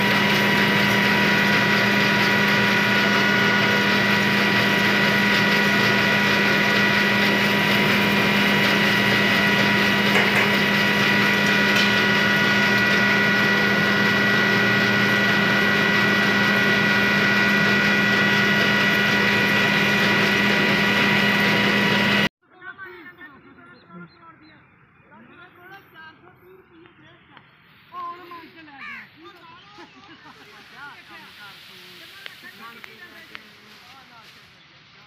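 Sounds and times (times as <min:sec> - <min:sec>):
high whining tones: 0:00.0 - 0:22.3
low hum: 0:00.0 - 0:22.3
mill machinery din: 0:00.0 - 0:22.3.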